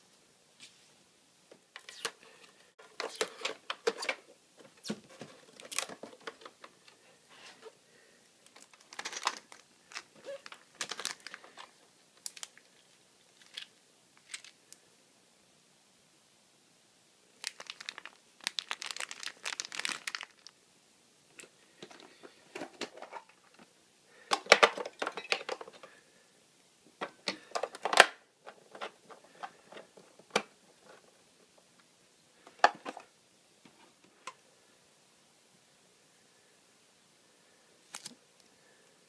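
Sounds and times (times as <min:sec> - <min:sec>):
plastic bag crinkling: 0:08.4 - 0:12.8, 0:17.4 - 0:20.6.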